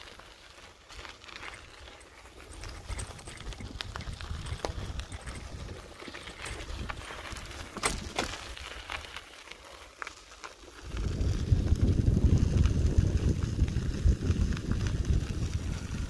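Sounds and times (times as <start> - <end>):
bicycle rattling knocks: 2.2 - 8.8
wind on microphone: 2.5 - 8.0, 10.8 - 16.0.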